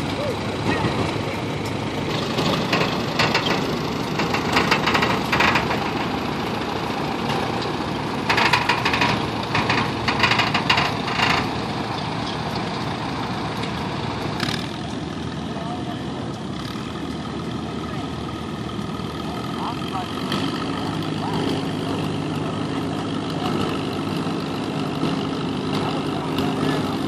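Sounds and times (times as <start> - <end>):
tractor engine under load: 0.0 - 27.0
rapid clattering: 2.1 - 6.5.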